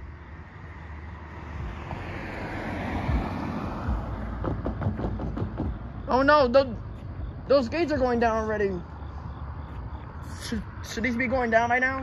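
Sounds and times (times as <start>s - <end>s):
car driving past: 0.2s - 5.9s.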